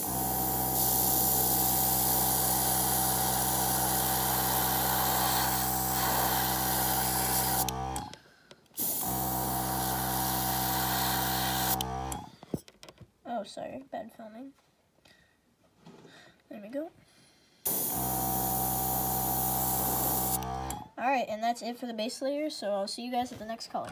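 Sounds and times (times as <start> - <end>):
airbrush spraying air hiss: 0.0 - 7.7, 17.7 - 20.4
air compressor humming: 0.0 - 8.2, 8.8 - 12.3, 17.6 - 20.9.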